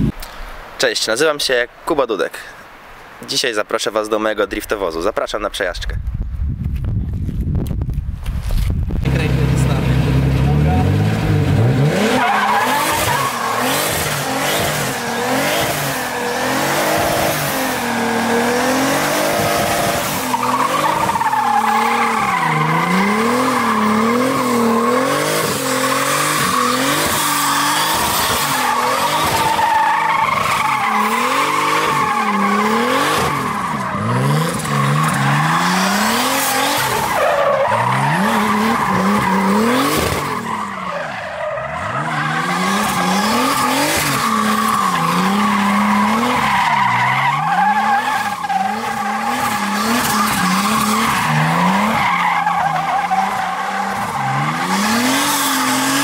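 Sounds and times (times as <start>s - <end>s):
car engine revving: 9.0s - 56.0s
tyres squealing: 12.0s - 56.0s.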